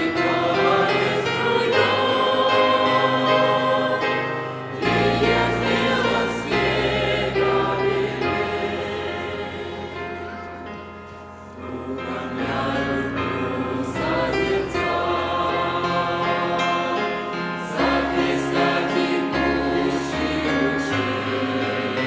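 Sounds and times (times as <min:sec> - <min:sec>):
choir singing a hymn: 0:00.0 - 0:22.0.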